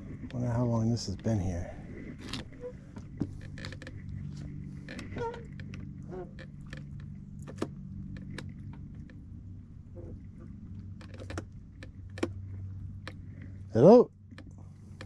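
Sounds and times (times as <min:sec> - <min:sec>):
boat motor idling: 0:00.0 - 0:15.0
light clicks and knocks: 0:02.2 - 0:13.6.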